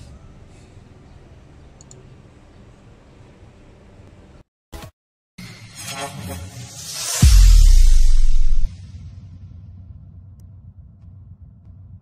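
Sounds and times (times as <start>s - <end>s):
animated intro sound effect: 5.4s - 9.9s.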